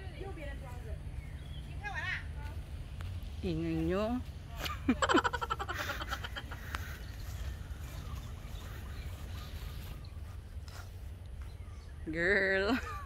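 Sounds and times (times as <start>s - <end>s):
faint bird calls: 5.5s - 12.8s.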